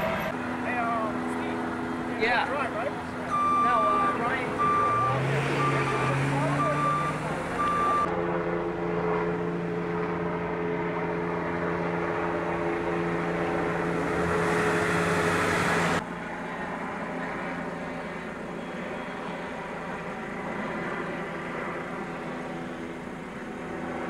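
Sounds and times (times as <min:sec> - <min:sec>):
vehicle engine drone: 0:00.0 - 0:24.0
reversing beeper: 0:03.2 - 0:08.1.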